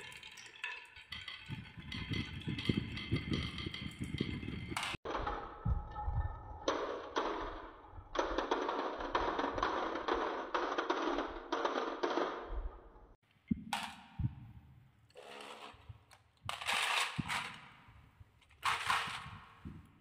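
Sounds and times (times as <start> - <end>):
toy truck rattling: 15.1 - 17.6, 18.4 - 19.6.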